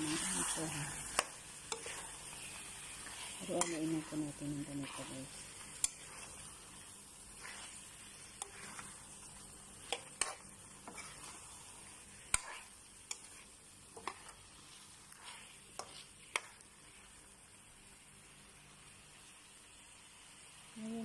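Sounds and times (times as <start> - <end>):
metal spoon scraping a pan: 0.0 - 17.1
faint sizzle: 0.0 - 21.0.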